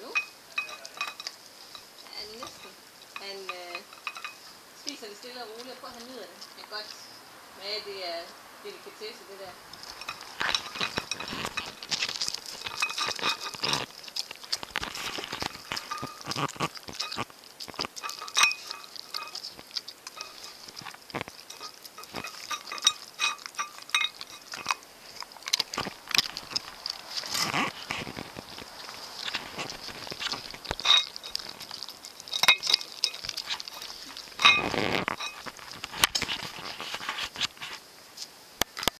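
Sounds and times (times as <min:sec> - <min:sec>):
dog licking and chewing: 0:09.6 - 0:37.8
sharp clicks and smacks: 0:09.8 - 0:37.6.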